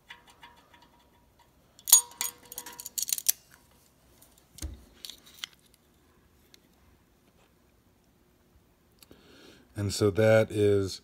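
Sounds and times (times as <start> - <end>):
metal ringing: 0.0 - 3.4
locking pliers clicking on metal: 1.8 - 3.5.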